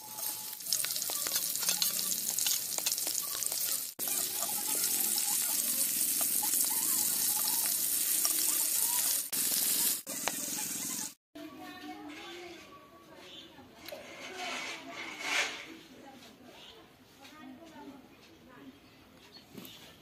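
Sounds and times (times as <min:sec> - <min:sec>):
metal spatula ticks and scrapes: 0:00.0 - 0:09.1
prawns sizzling in hot oil: 0:00.0 - 0:11.2.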